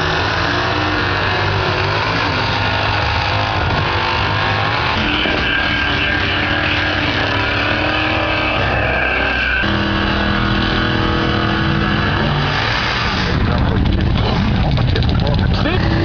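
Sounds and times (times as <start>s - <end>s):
drag car engine revving: 0.0s - 16.0s
tyres spinning: 0.0s - 16.0s.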